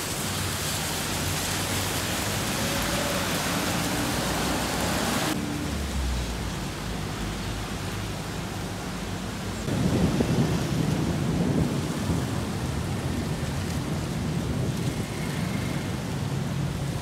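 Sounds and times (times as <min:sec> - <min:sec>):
steady rain: 0:00.0 - 0:17.0
thunder rumbling: 0:09.7 - 0:17.0.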